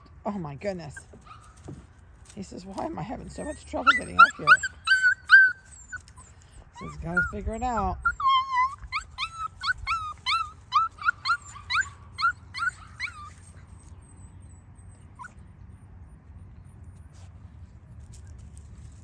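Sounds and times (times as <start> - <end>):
faint puppy whimper: 3.3 - 15.5
puppy whining in high yelps: 3.4 - 15.5.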